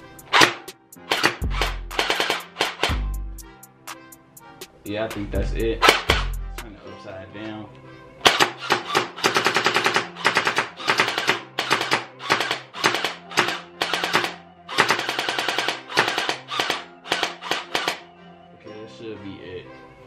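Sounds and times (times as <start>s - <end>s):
gel blaster firing bursts: 0.3s - 3.0s, 5.8s - 6.4s, 8.3s - 18.0s.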